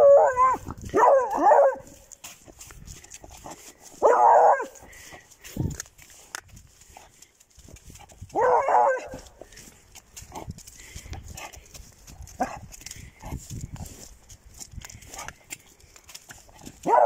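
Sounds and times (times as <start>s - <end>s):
dog barking: 0.0s - 2.0s, 4.0s - 4.8s, 8.3s - 9.3s
footsteps on wet pavement: 0.0s - 17.0s.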